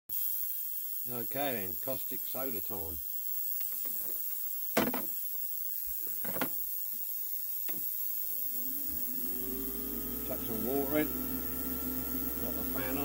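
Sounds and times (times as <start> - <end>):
objects knocking on workbench: 4.8 - 5.2, 6.2 - 6.6
extractor fan humming: 7.8 - 13.0.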